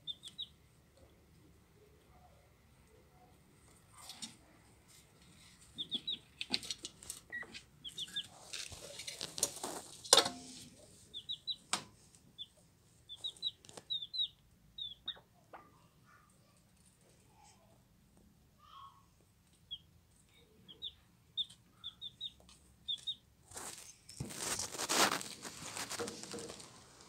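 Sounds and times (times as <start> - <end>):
chick peeping: 0.0 - 0.6, 5.6 - 9.9, 11.0 - 15.9, 19.5 - 26.7.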